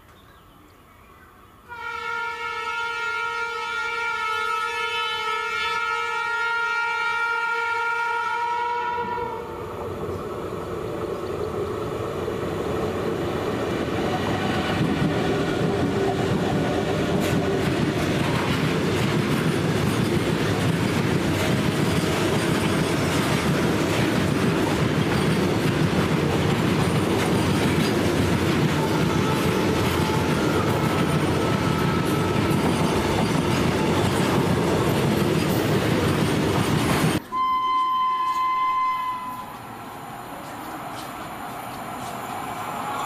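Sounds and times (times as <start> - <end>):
locomotive horn: 1.7 - 9.6, 28.6 - 32.6, 37.2 - 39.7
freight train wagons rumbling: 9.7 - 37.3, 38.3 - 43.0
wheels clattering over rails: 14.8 - 37.2.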